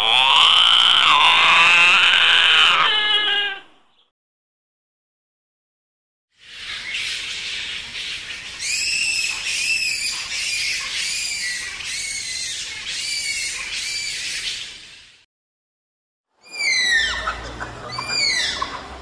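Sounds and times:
bat screeching calls: 0.0s - 3.6s, 8.6s - 14.2s, 16.4s - 17.3s, 17.9s - 18.7s.

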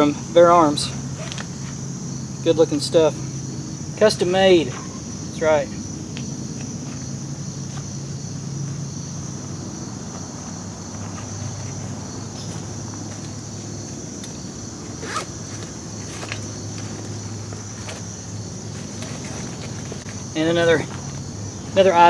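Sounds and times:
insects chorus: 0.0s - 22.0s
backpack rustling: 1.1s - 1.8s, 10.0s - 21.3s
handling ticks: 10.1s - 21.3s.

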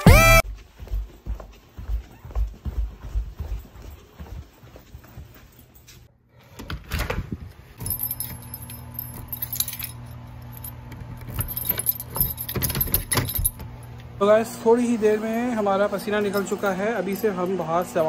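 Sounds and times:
footsteps on carpeted stairs: 0.0s - 8.2s
keys jangling: 7.8s - 14.0s, 15.2s - 18.0s.

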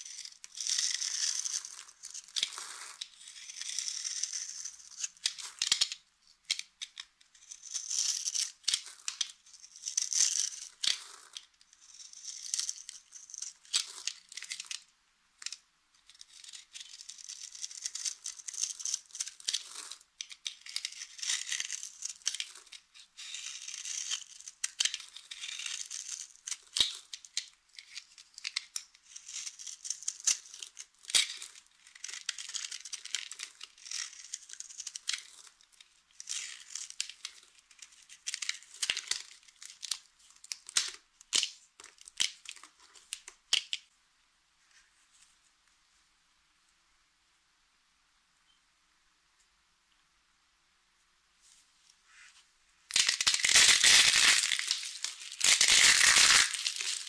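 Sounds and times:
knife scraping dry soap: 0.0s - 14.8s, 15.4s - 39.7s.

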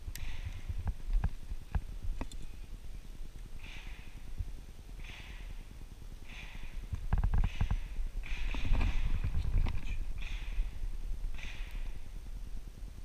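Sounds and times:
low rumble: 0.0s - 13.0s
person breathing slowly: 0.2s - 0.9s, 3.6s - 4.4s, 5.0s - 12.2s.

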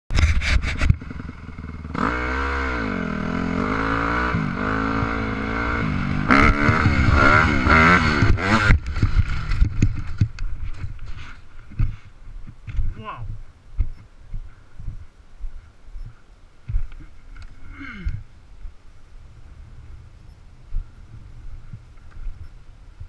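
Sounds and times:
dirt bike engine revving: 0.4s - 10.3s.

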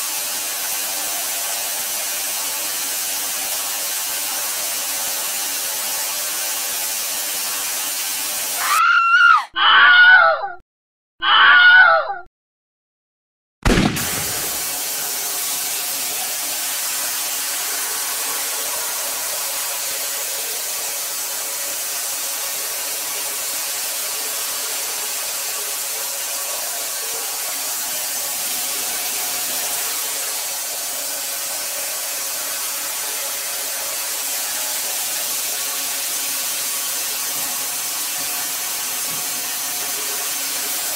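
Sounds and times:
shower spraying water on floor: 0.0s - 9.0s, 13.7s - 40.9s.

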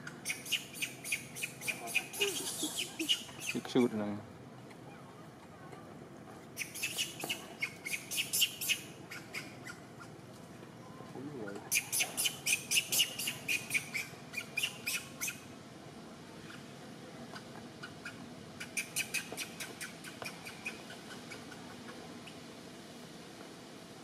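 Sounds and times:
high-pitched animal chirps: 0.2s - 3.6s, 6.6s - 9.8s, 11.6s - 15.4s, 17.8s - 21.7s.

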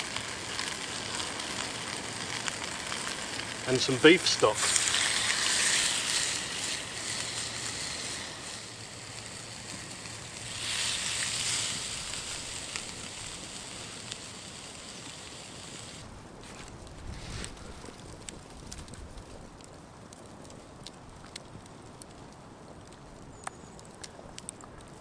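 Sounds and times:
stock sizzling in hot bowl: 0.0s - 16.1s
campfire crackles: 0.0s - 25.0s.

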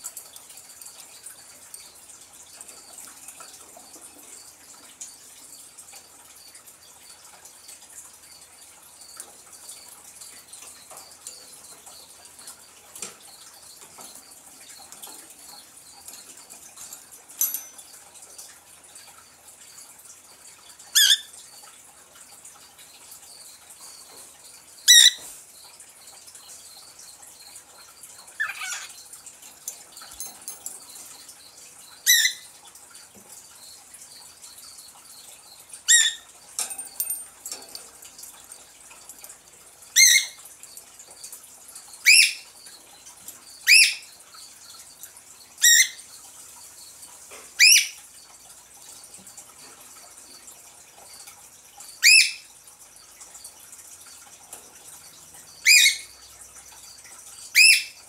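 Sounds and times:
cockatiel calling: 21.0s - 21.3s, 24.9s - 25.2s, 28.4s - 28.9s, 32.1s - 32.4s, 47.6s - 48.0s.

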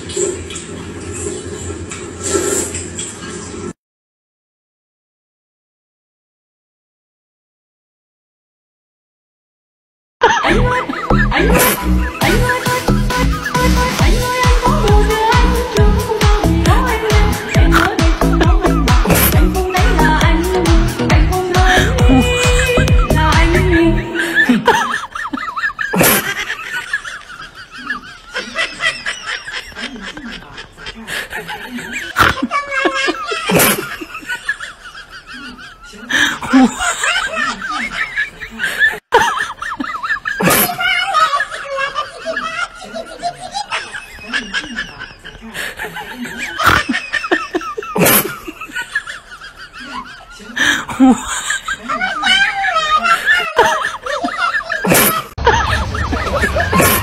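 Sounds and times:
people laughing and giggling: 10.2s - 57.0s
dance music beat: 10.6s - 24.1s
sudden loud burst of noise: 55.4s - 57.0s.

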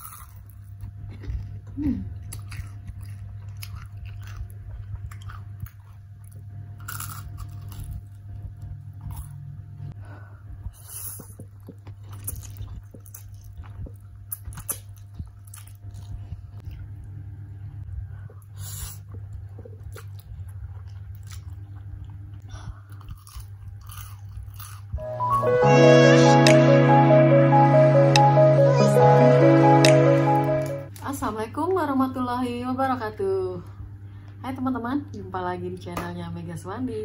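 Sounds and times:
crunching fried chicken: 0.0s - 9.4s, 19.4s - 25.0s.

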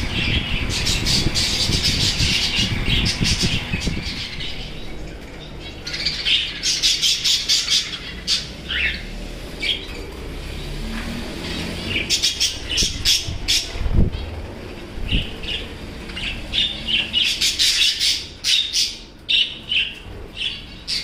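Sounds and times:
low rumble: 0.0s - 6.7s
small birds chirping: 0.0s - 21.0s.

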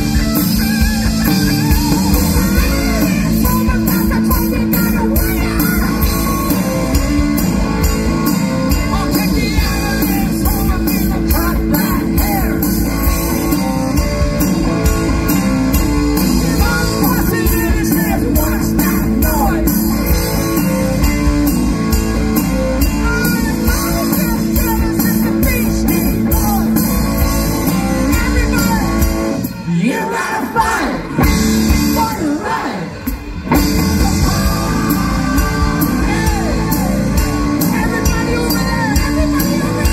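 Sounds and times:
rock band playing live: 0.0s - 39.9s
person singing: 1.6s - 7.2s, 8.6s - 12.7s, 33.6s - 39.9s.

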